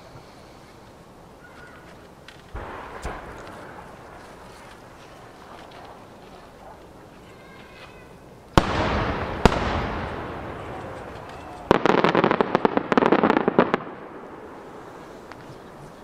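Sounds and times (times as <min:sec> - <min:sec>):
fireworks crackling: 0:00.0 - 0:16.0
fireworks booming: 0:02.5 - 0:06.8, 0:08.4 - 0:16.0
rolling echo: 0:02.6 - 0:06.9, 0:08.6 - 0:15.9.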